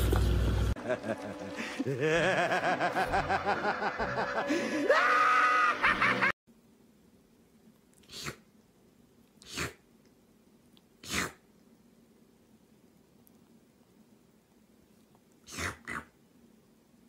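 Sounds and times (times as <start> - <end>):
kitten sneezing: 8.0 - 8.5, 9.4 - 9.8, 11.0 - 11.4, 15.4 - 16.1.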